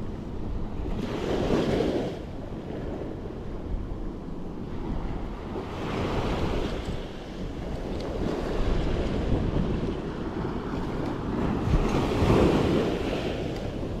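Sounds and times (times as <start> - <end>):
wind buffeting microphone: 0.0 - 14.0
surf breaking on shore: 5.6 - 14.0.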